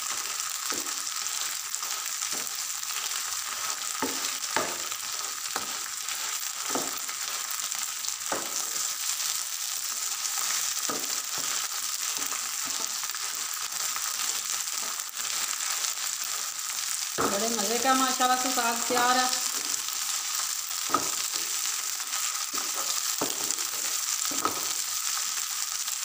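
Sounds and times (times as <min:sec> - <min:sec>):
greens sizzling in ghee: 0:00.0 - 0:26.0
spatula scraping a pan: 0:00.7 - 0:07.5, 0:09.8 - 0:16.5, 0:18.9 - 0:24.8.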